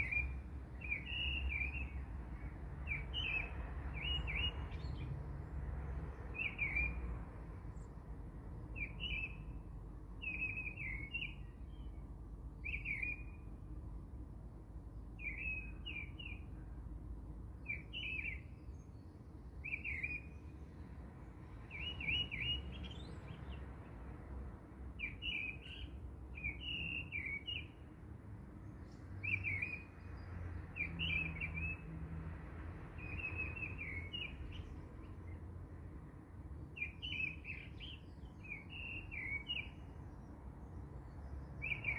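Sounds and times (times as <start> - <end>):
small birds chirping: 0.0 - 5.1, 6.1 - 7.0, 10.2 - 12.0, 21.5 - 23.9, 25.0 - 27.9, 33.0 - 35.4, 36.6 - 41.9.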